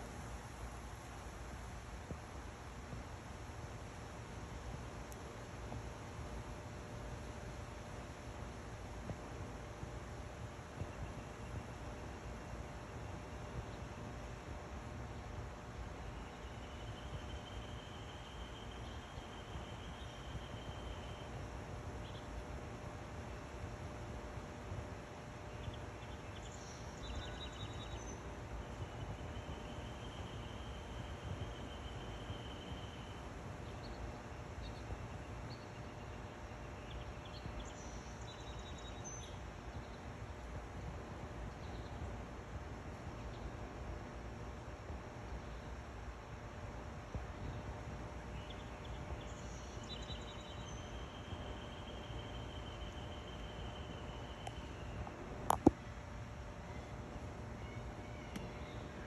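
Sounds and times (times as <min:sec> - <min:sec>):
faint high whine: 0:00.0 - 0:59.0
outdoor background noise: 0:00.0 - 0:59.0
faint bird chirps: 0:25.5 - 0:40.0, 0:48.3 - 0:55.8, 0:56.5 - 0:59.0.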